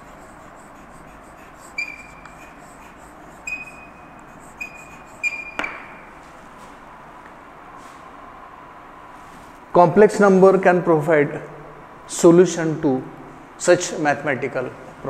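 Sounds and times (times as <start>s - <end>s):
chalk squeaking on blackboard: 0.0s - 5.9s
chalk tapping on board: 0.0s - 5.9s.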